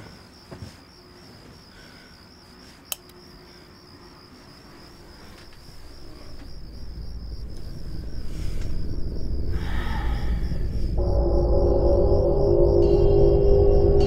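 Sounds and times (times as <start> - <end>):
crickets chirping: 0.0 - 14.0
low rumbling drone: 6.6 - 14.0.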